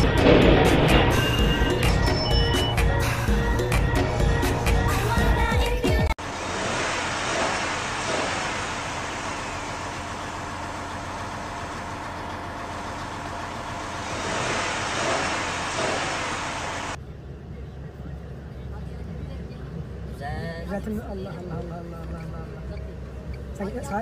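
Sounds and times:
engine running under load: 0.0s - 5.5s, 6.2s - 24.0s
tyres churning mud: 6.2s - 24.0s.

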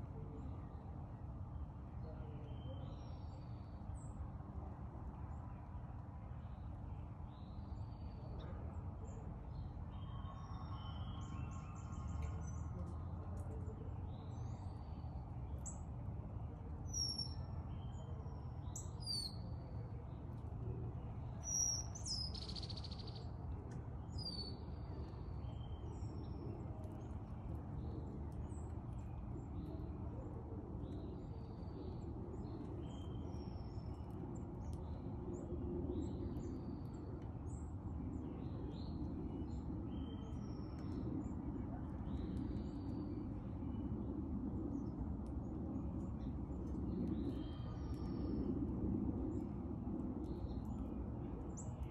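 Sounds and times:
low background rumble: 6.4s - 51.9s.

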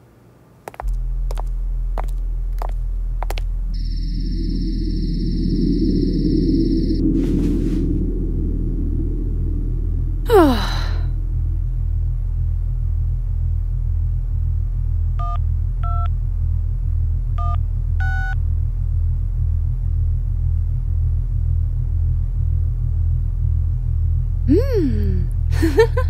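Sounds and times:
low pulsing rumbling drone: 0.7s - 26.0s
loud falling whoosh: 0.8s - 13.2s.

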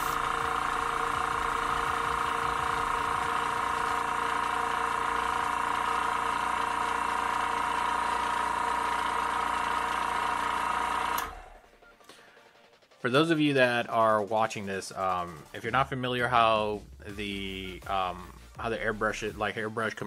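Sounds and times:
compressor motor humming: 0.0s - 11.6s.

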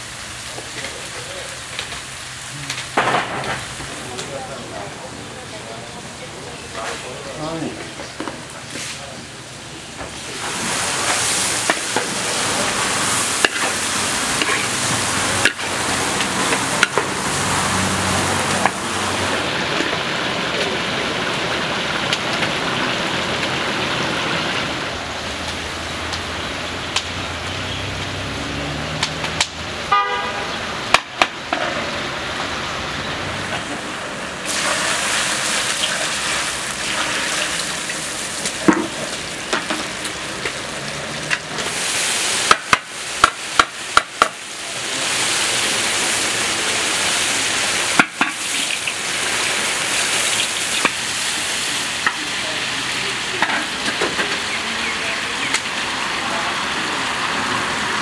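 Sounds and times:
oil and food sizzling in a pot: 0.0s - 58.0s
horn toot: 29.9s - 30.7s.

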